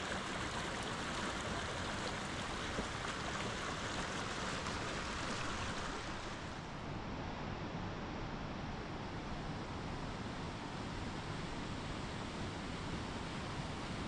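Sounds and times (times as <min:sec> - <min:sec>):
mountain stream rushing: 0:00.0 - 0:06.7.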